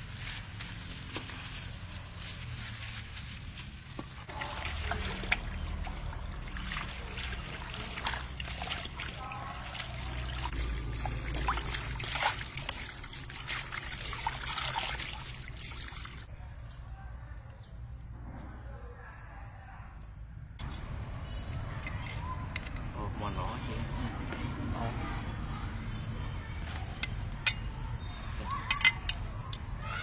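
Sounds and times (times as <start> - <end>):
water trickling and splashing: 0.0 - 16.3.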